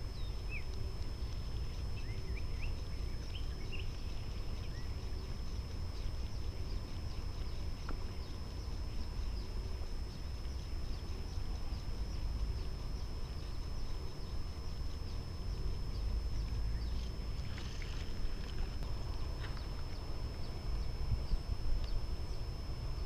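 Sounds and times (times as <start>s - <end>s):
high-pitched whine: 0.0s - 23.0s
faint ticks: 0.1s - 23.0s.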